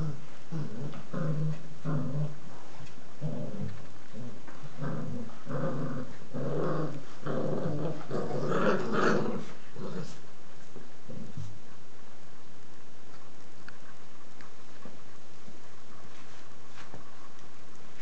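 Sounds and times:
puppies growling: 0.0 - 11.6.

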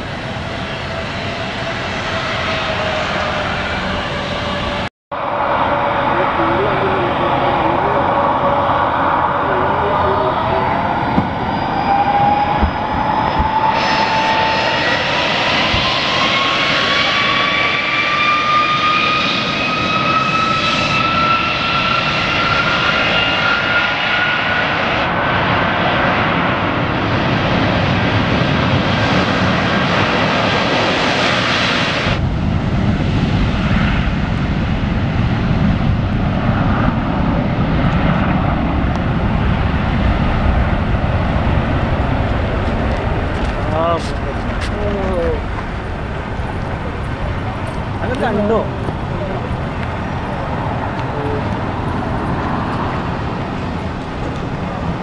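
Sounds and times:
deep jet rumble: 0.0 - 55.0
jet engines roaring at take-off: 0.0 - 55.0.

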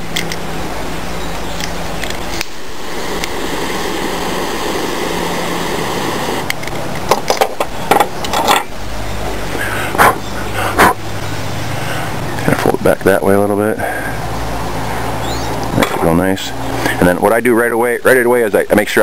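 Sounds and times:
steady low hum: 0.0 - 18.8
lighter flame hissing: 2.2 - 6.5.

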